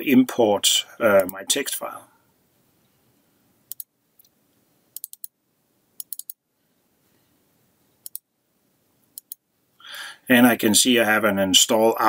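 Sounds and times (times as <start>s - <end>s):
computer mouse clicking: 3.7s - 4.4s, 5.0s - 5.3s, 6.0s - 6.4s, 8.0s - 8.2s, 9.1s - 9.4s.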